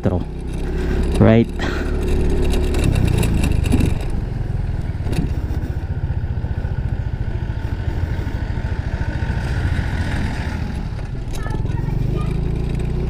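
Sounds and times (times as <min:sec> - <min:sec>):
scooter engine running: 0:00.0 - 0:13.0
short clatter: 0:00.5 - 0:04.2.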